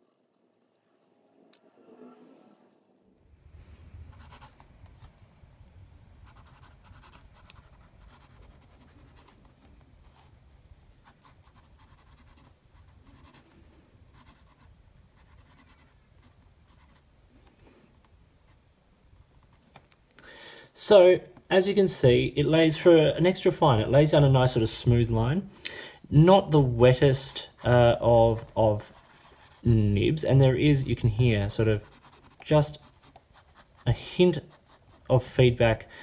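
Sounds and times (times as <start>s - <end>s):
fountain pen scratching on paper: 0.0s - 0.8s, 6.2s - 9.4s, 11.0s - 13.4s, 14.1s - 17.0s, 28.4s - 29.6s, 31.7s - 35.1s
steady low hum: 0.0s - 15.2s.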